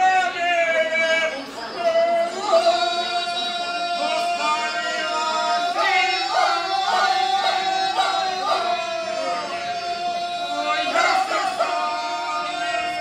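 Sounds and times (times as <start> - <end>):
men singing a cappella harmony: 0.0 - 13.0.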